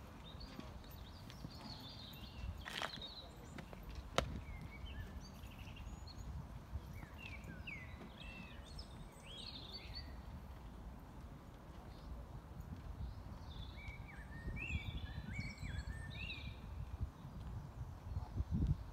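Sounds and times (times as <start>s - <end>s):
small birds chirping: 0.0s - 12.2s.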